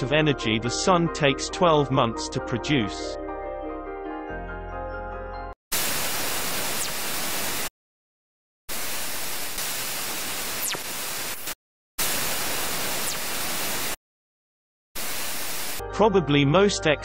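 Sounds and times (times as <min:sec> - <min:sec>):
radio static bursts: 0:05.7 - 0:07.7, 0:08.7 - 0:14.0, 0:15.0 - 0:15.8.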